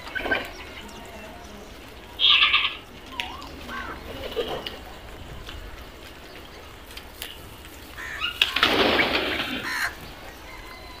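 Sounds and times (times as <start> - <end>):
crows' wings flapping: 0.0 - 11.0.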